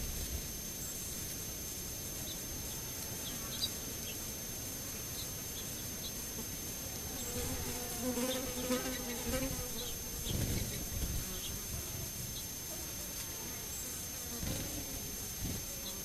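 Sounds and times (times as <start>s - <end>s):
flying insect buzzing: 0.0s - 16.0s.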